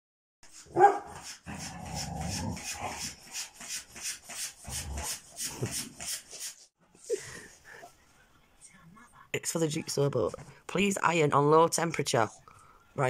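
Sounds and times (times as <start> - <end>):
dog growling: 1.4 - 3.0.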